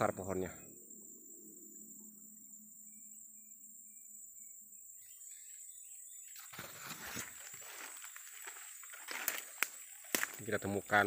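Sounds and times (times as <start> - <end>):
high-pitched insect chirring: 0.0 - 11.0
leaves and undergrowth rustling: 6.4 - 11.0.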